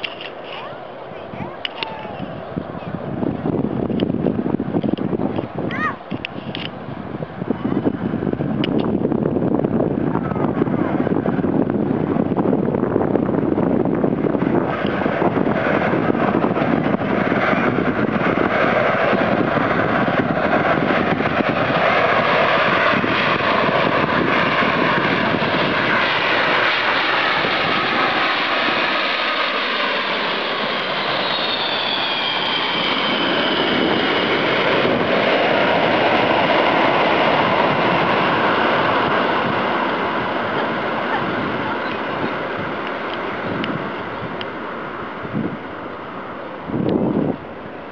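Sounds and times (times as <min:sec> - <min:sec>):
jet engines passing overhead: 0:00.0 - 0:47.9
turbine whine: 0:00.0 - 0:47.9.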